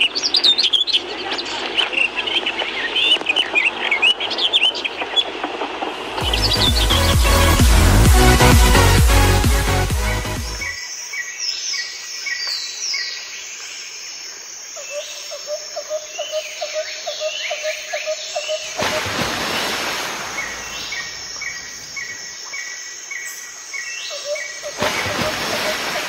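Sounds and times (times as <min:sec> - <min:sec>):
birds chirping and calling: 0:00.0 - 0:05.6, 0:06.2 - 0:08.0
loud rush of noise: 0:05.0 - 0:10.0.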